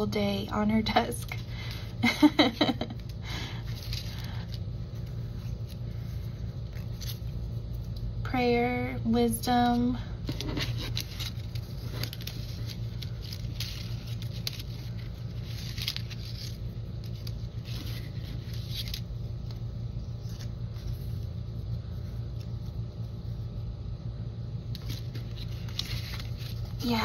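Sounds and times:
low background hum: 0.0 - 27.0
paper pieces rustling and sliding: 3.6 - 8.0, 10.2 - 22.6, 24.7 - 27.0.

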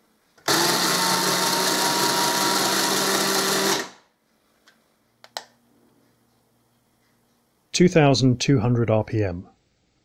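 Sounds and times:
mini chainsaw whining: 0.5 - 4.0.

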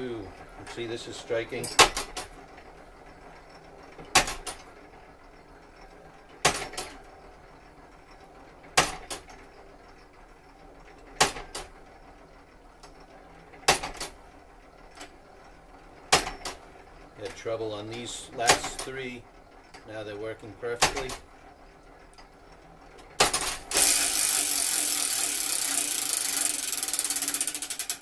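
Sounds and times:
clock mechanism metallic clacks: 0.0 - 2.6, 3.2 - 4.8, 14.8 - 21.3, 22.9 - 28.0.

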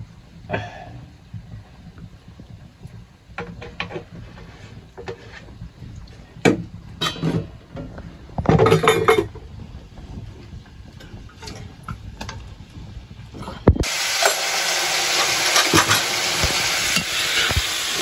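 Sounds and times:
loud clatter of pots: 3.4 - 5.4, 6.4 - 9.5, 11.0 - 12.6, 13.5 - 18.0
metal pots and utensils clinking: 7.0 - 7.9, 8.5 - 9.5, 11.0 - 12.4, 13.9 - 18.0.

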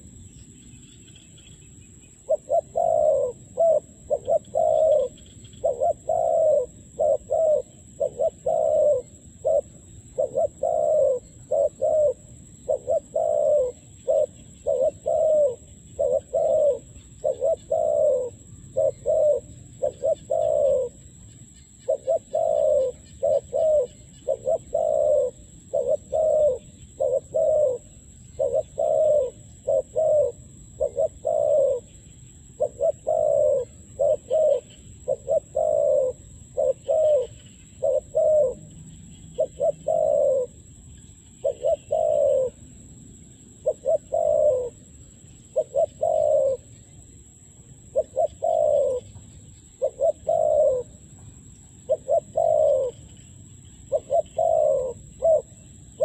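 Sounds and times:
dove cooing: 2.2 - 42.7, 43.5 - 47.0, 47.8 - 56.0.

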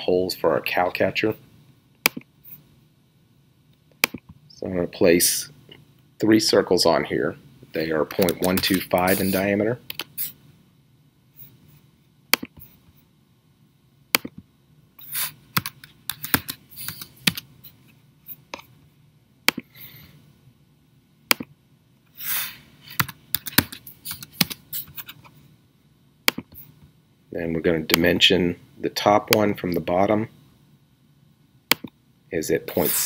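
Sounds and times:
mouse clicks: 4.0 - 4.3, 31.7 - 32.0
keyboard typing: 8.1 - 9.2, 15.6 - 17.5, 22.9 - 25.2.

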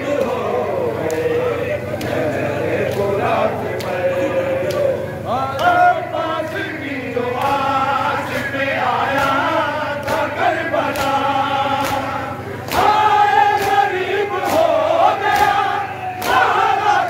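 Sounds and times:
men chanting a lament: 0.0 - 17.0
chest-beating slaps: 10.9 - 16.6.

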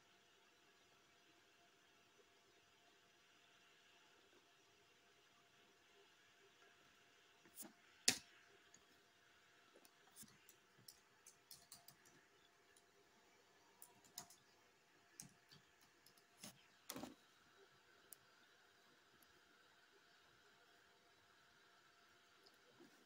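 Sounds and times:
computer mouse clicks: 9.8 - 12.9, 13.8 - 14.6, 15.2 - 17.2.

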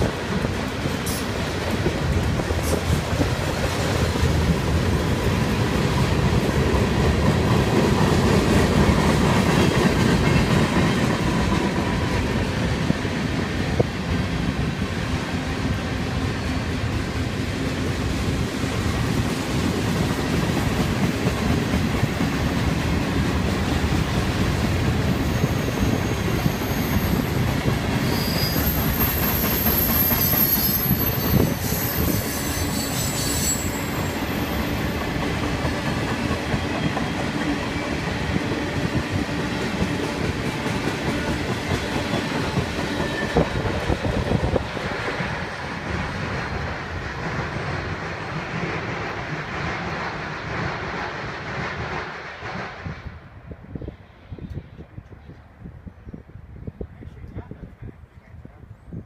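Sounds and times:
train wheels rumbling on rails: 0.0 - 58.0
high-pitched wheel squeals: 25.1 - 27.4, 28.0 - 34.8.

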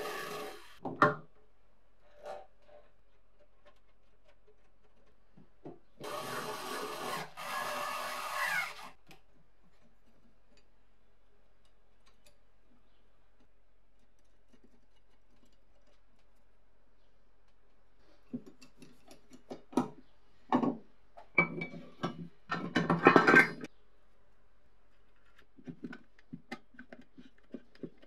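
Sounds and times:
cordless screwdriver running: 6.0 - 8.9.

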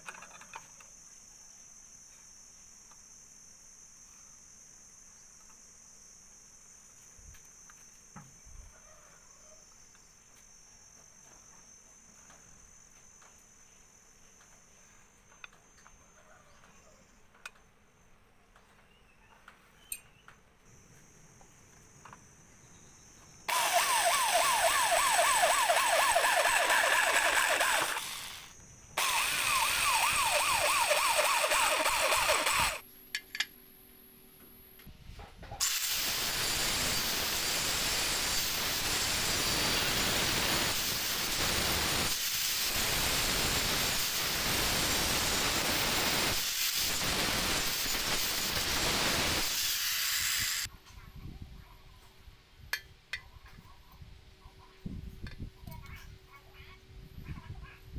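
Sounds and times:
angle grinder cutting steel: 23.5 - 32.8, 35.6 - 50.7
electric drill boring into steel: 23.5 - 32.8, 35.6 - 50.7.

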